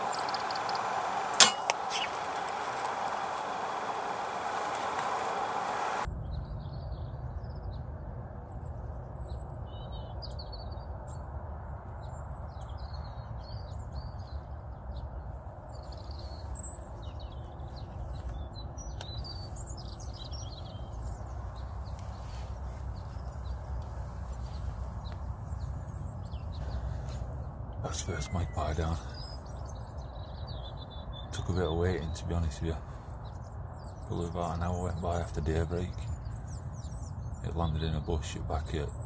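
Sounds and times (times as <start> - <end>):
songbirds chirping and singing: 0.0 - 7.5, 12.1 - 39.0
steady low rumble: 16.4 - 30.8.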